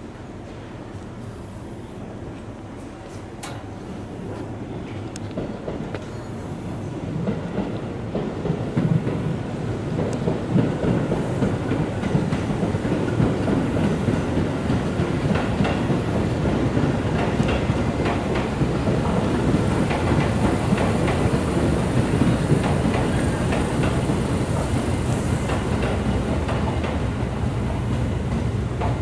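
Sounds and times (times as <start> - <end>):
electric train rumbling: 0.0 - 29.0
wheels clacking over rail joints: 10.0 - 29.0.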